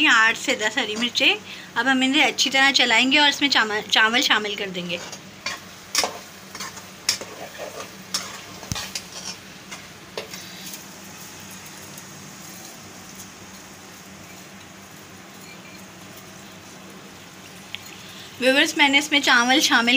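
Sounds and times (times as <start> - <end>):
frying sizzle: 0.0 - 19.9
spoon scraping a pan: 4.9 - 10.8.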